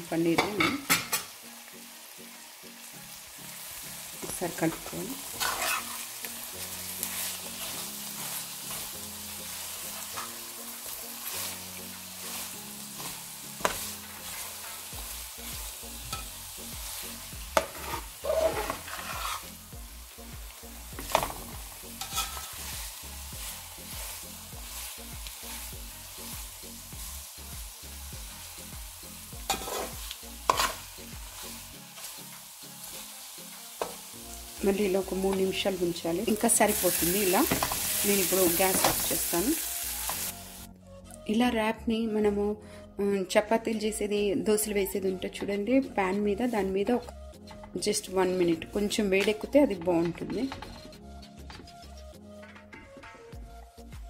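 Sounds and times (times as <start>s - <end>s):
filling sizzling in frying pan: 0.0s - 40.7s
spatula scraping and knocking pan: 4.2s - 6.1s, 17.5s - 19.6s, 21.0s - 22.6s, 29.4s - 30.8s, 52.4s - 53.4s.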